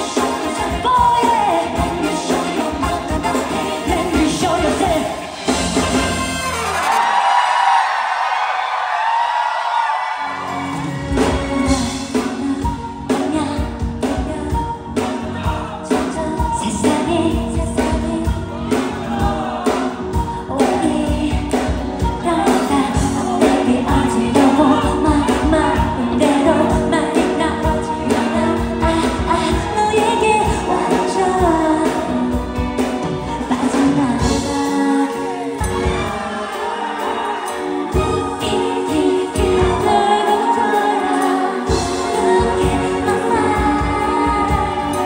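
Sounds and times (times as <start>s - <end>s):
woman singing into microphone: 0.0s - 5.3s, 11.1s - 45.0s
live pop band: 0.0s - 45.0s
steady drum beat: 13.6s - 34.8s.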